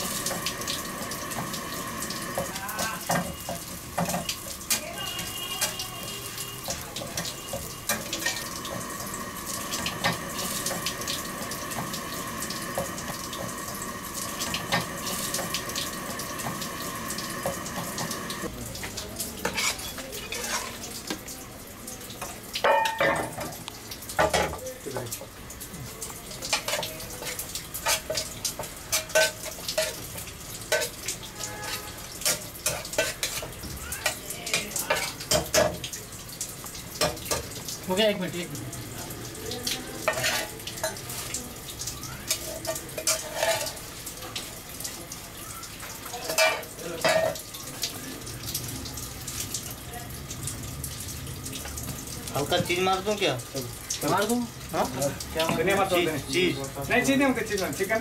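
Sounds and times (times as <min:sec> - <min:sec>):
frying sizzle: 0:00.0 - 0:58.0.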